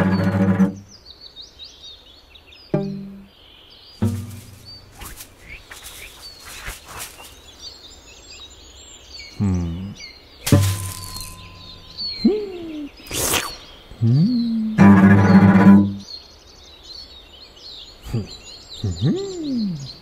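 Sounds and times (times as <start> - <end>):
birdsong: 0.0 - 20.0
sharp hit with ringing tone: 10.5 - 12.2.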